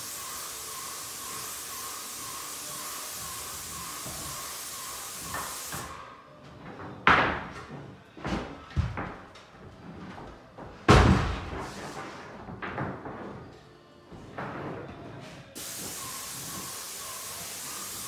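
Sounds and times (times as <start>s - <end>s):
paint spray gun hissing: 0.0s - 6.0s, 15.6s - 18.0s
knocks and thumps: 10.2s - 13.5s.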